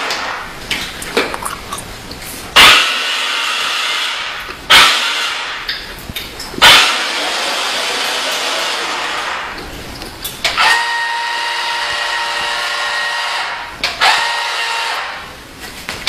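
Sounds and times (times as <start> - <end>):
toy electric motors whirring: 6.6 - 9.3.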